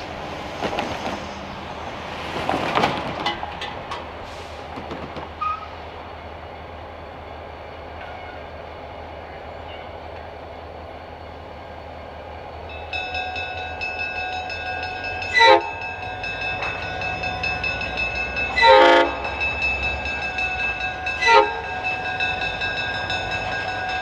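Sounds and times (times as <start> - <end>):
diesel locomotives rumbling: 0.0 - 24.0
crossing bell ringing: 12.6 - 24.0
locomotive horn blast: 15.2 - 15.8, 18.5 - 19.4, 21.1 - 21.8.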